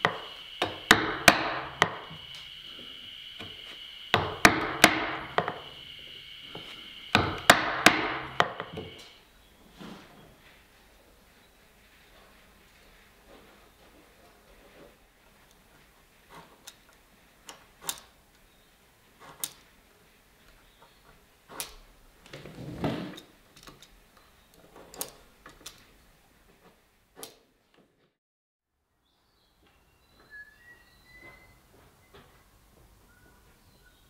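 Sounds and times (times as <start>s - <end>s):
faint high chirps: 29.5s - 32.4s.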